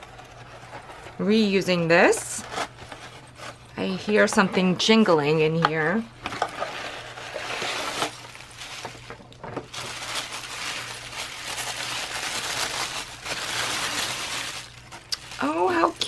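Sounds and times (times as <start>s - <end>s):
package scraping out of cardboard: 6.5s - 9.1s
tissue paper rustling: 6.6s - 16.0s.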